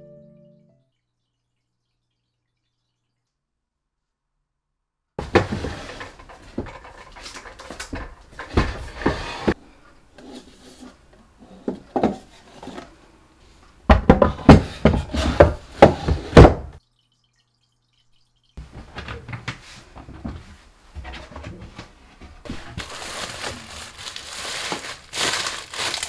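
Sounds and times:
wood knocking on wood: 13.9s - 16.8s.

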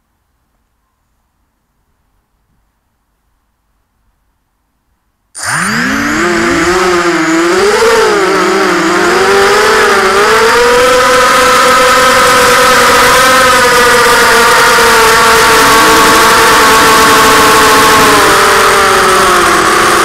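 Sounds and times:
quadcopter motors whining: 5.4s - 20.0s.

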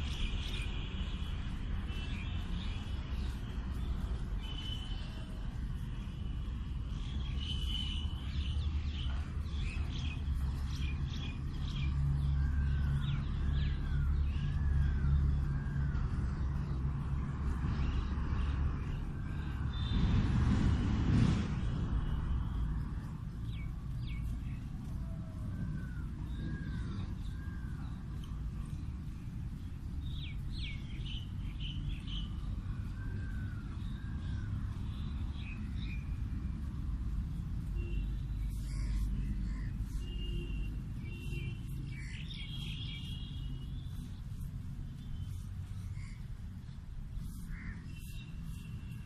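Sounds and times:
small birds chirping: 0.0s - 20.0s, 21.8s - 49.0s
low background rumble: 31.3s - 49.0s.

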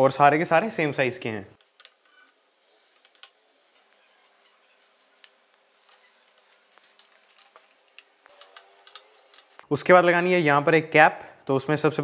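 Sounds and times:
socket tool clicking and scraping: 1.6s - 4.4s, 5.0s - 9.6s.

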